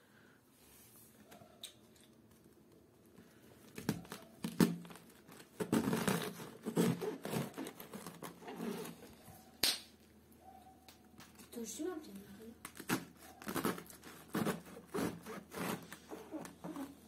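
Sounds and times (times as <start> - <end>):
knife slicing through cabbage: 5.6 - 9.0, 12.7 - 17.0.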